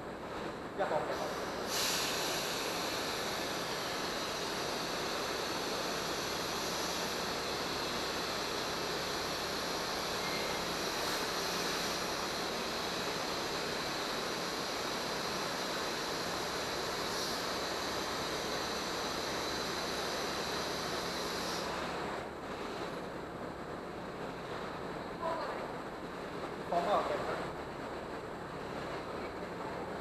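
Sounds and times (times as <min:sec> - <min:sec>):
electric air blower running: 0:01.1 - 0:22.0.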